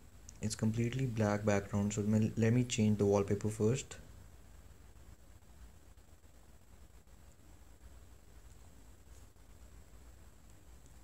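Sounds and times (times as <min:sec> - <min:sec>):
faint low rumble: 0:00.0 - 0:11.0.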